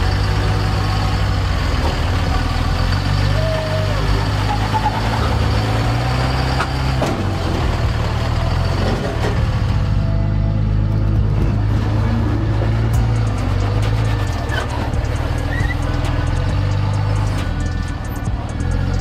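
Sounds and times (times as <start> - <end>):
pickup truck engine at low revs: 0.0 - 19.0.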